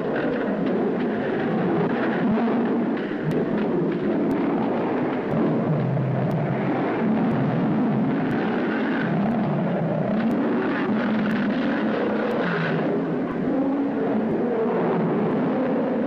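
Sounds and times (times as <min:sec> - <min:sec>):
rough rumbling noise: 0:00.0 - 0:16.0
faint ticks: 0:03.0 - 0:13.4.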